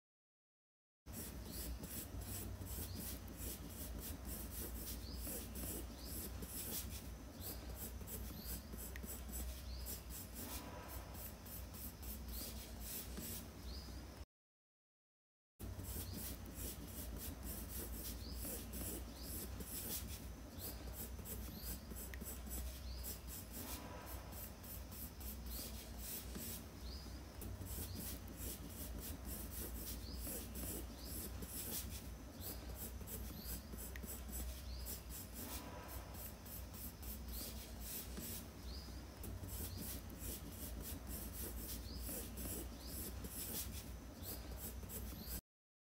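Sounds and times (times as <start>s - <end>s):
pencil scratching on paper: 1.1s - 13.5s, 15.6s - 45.4s.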